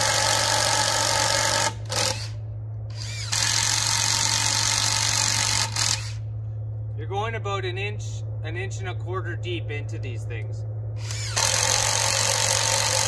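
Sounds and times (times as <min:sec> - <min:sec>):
cordless drill boring into log: 0:00.0 - 0:02.3, 0:02.9 - 0:06.2, 0:11.0 - 0:13.0.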